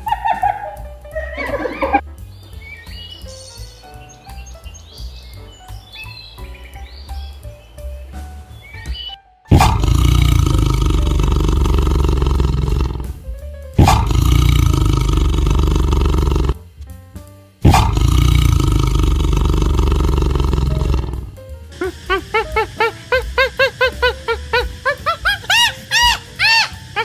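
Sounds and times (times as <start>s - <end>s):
large animal roaring: 9.5s - 13.1s, 13.8s - 16.6s, 17.7s - 21.3s.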